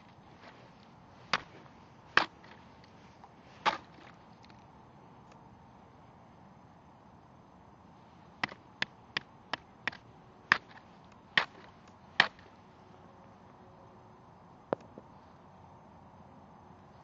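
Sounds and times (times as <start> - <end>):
stick knocking on thin ice: 1.3 - 2.6, 3.6 - 4.2, 8.4 - 12.5.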